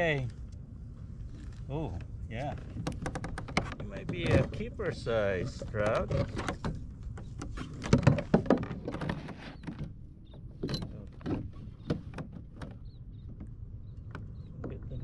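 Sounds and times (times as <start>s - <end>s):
fishing tackle clicks and knocks: 2.6s - 4.7s.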